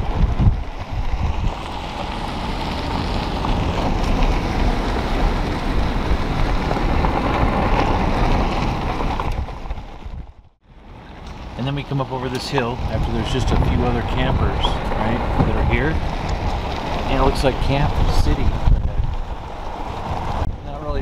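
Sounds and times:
tyre rumble: 0.0s - 10.5s
gravel under tyres: 0.0s - 21.0s.

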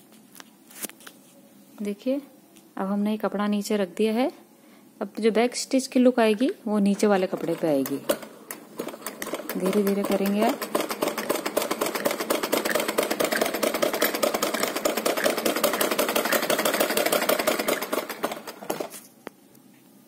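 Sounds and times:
sewing machine clatter: 7.0s - 19.0s.

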